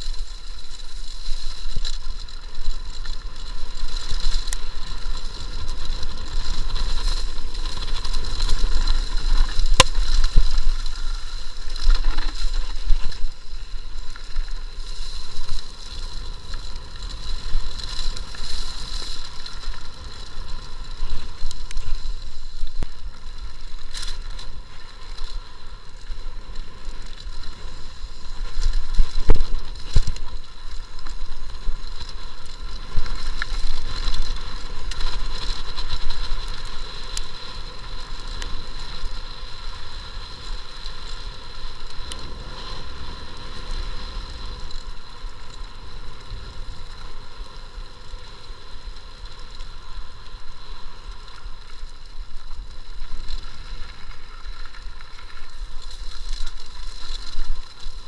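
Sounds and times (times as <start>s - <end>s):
bike rattling: 0.0s - 58.0s
bike knocking on bumps: 4.7s - 13.3s.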